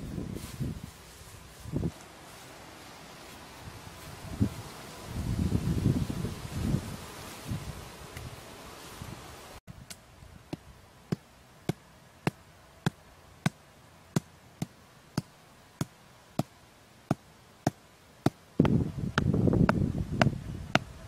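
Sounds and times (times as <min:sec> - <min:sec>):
hammer knocking wooden stakes: 0:14.2 - 0:16.5.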